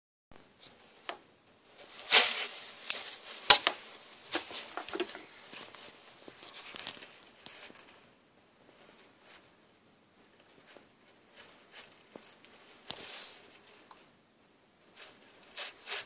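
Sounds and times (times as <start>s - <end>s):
wood chips rustling and clattering: 1.0s - 8.0s.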